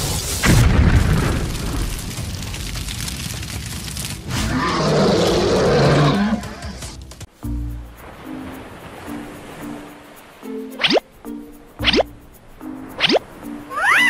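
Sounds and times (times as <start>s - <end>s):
growling monster roar: 4.3s - 6.7s.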